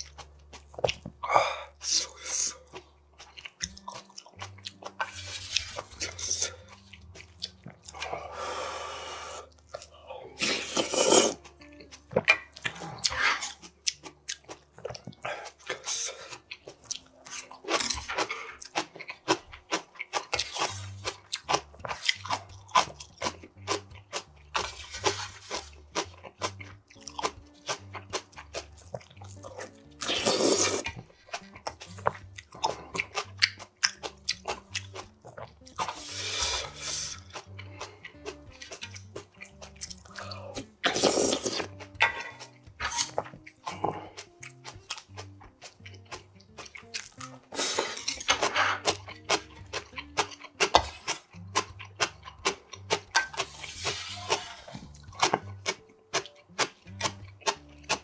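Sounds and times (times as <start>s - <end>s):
chewing crunchy food: 0.0s - 58.0s
man slurping noodles: 10.3s - 11.4s, 30.0s - 31.0s, 35.8s - 37.3s, 40.2s - 43.0s, 47.5s - 49.0s, 53.4s - 55.0s.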